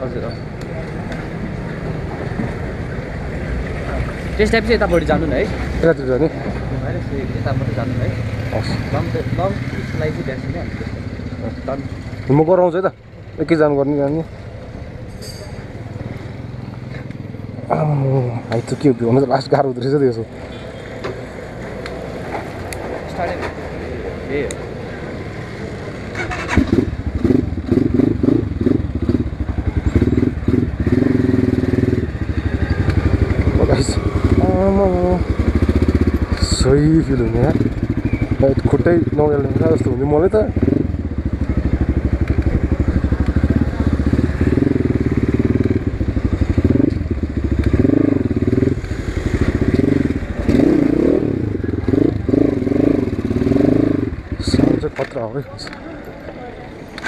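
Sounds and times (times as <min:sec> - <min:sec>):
dirt bike engine revving: 0:26.0 - 0:55.1.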